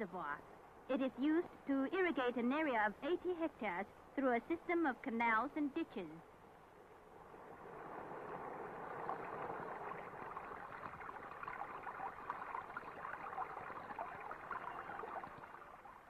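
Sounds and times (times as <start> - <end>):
water rushing and splashing: 7.2 - 16.0.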